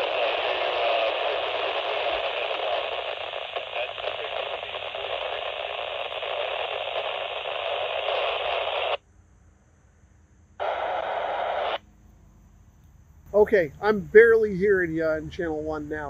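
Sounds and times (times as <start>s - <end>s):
radio static hiss: 0.0s - 9.0s, 10.6s - 11.8s, 13.3s - 16.0s.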